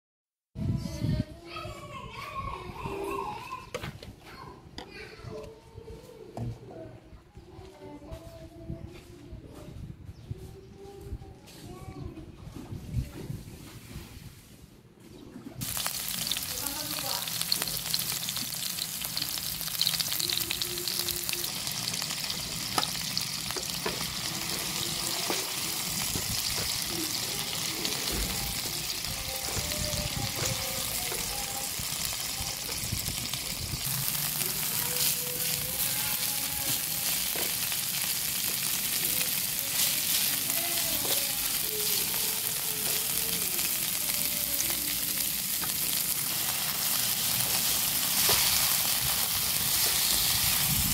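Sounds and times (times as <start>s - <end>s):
oil sizzling in a frying pan: 15.6s - 50.9s.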